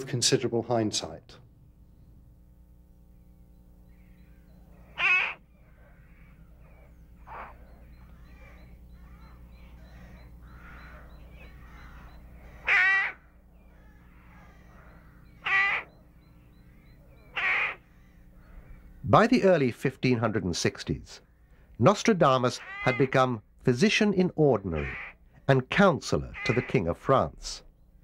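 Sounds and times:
low steady hum: 0:00.0 - 0:28.0
crow cawing: 0:03.9 - 0:19.0, 0:22.6 - 0:23.3, 0:24.7 - 0:25.4, 0:26.2 - 0:27.0.

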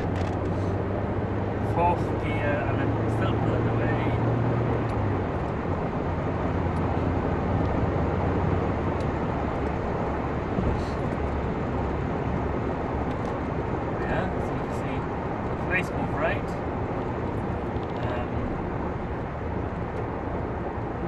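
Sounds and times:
car engine drone: 0:00.0 - 0:21.0
tyre and wind noise: 0:04.4 - 0:14.2.

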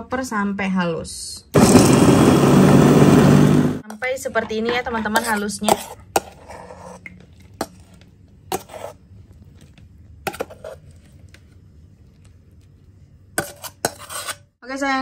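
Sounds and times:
metal spoon scraping bowl and plate: 0:04.6 - 0:09.0, 0:10.3 - 0:11.0, 0:13.4 - 0:14.5.

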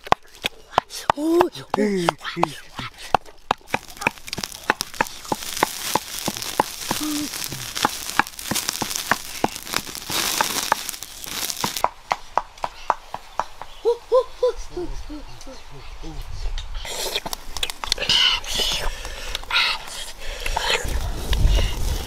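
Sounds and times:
sharp pops and crackles: 0:00.0 - 0:12.6, 0:17.2 - 0:18.0
meat sizzling on hot stone: 0:03.7 - 0:11.8.

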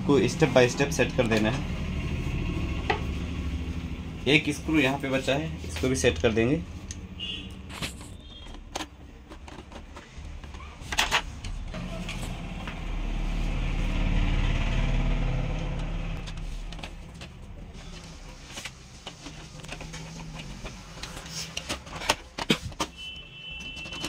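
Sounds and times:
plastic parts clicking: 0:07.7 - 0:11.7, 0:18.6 - 0:24.0.

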